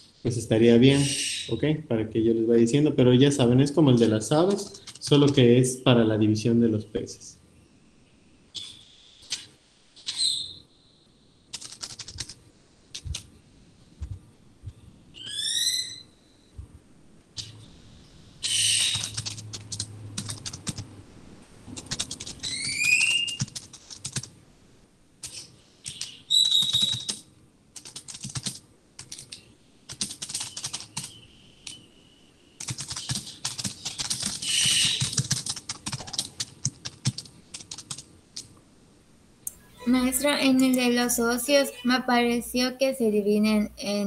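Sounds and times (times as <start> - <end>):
high rising whistled chirps: 0.8 - 1.7, 15.2 - 16.6, 22.4 - 23.4, 25.9 - 27.1, 30.5 - 32.6
computer keyboard typing: 4.0 - 5.4, 11.5 - 12.4, 18.8 - 20.9, 21.7 - 24.3, 25.2 - 27.2, 27.8 - 31.2, 32.6 - 38.5.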